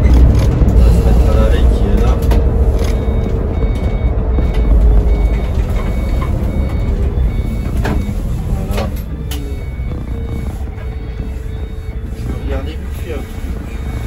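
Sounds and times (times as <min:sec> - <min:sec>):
bus engine and road rumble: 0:00.0 - 0:14.0
faint short beeps: 0:02.8 - 0:14.0.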